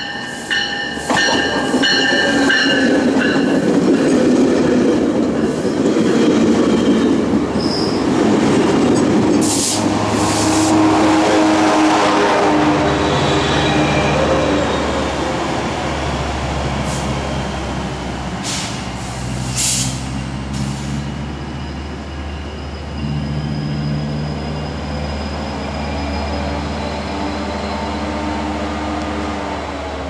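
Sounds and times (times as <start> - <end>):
diesel locomotive engine droning: 0.0 - 30.0
short air hisses: 9.4 - 10.7, 18.4 - 21.0.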